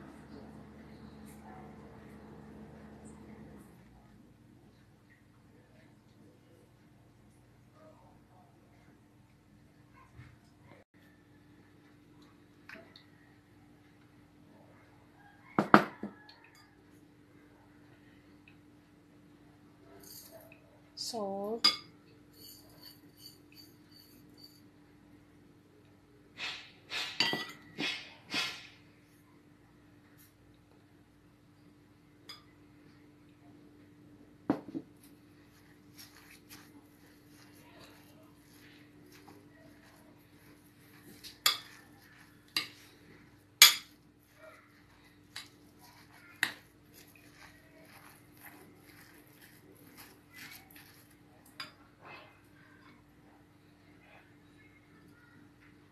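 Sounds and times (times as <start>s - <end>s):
metal spoon scraping glass bowl: 21.7s - 24.6s
metal utensil clinking on glass bowl: 41.1s - 42.9s, 43.6s - 44.0s.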